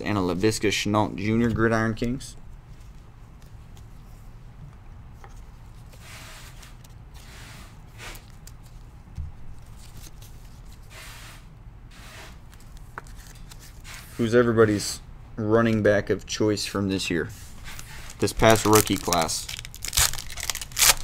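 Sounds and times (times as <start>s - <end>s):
card wrappers crinkling: 9.5s - 10.8s, 17.6s - 21.0s.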